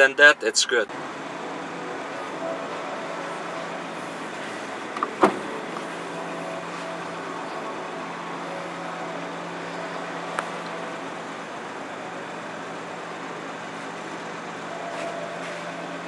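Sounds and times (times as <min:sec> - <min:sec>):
steady low hum: 0:00.9 - 0:16.0
trunk latch clunk: 0:04.9 - 0:05.9.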